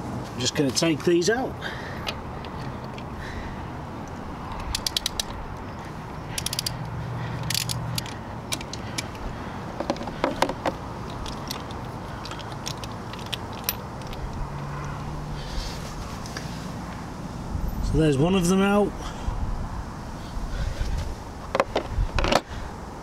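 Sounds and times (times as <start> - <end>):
socket ratchet clicking: 4.5 - 5.6, 6.3 - 9.2
metal clinks: 11.1 - 14.3.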